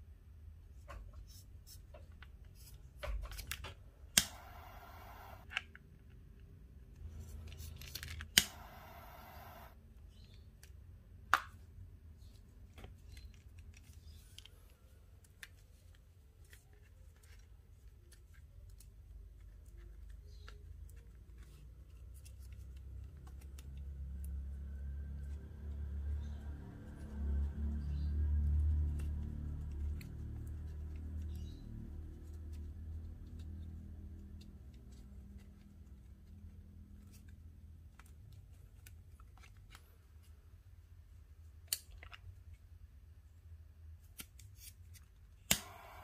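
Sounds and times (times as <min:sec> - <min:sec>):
lighter gas hissing: 0:04.2 - 0:05.5, 0:08.4 - 0:09.8, 0:45.5 - 0:46.0.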